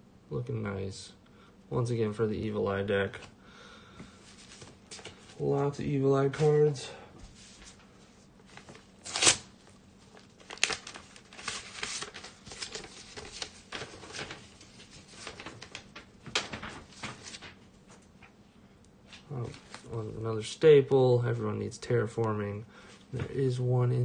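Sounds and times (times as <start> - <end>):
trading cards and packaging rustling: 10.0 - 18.3.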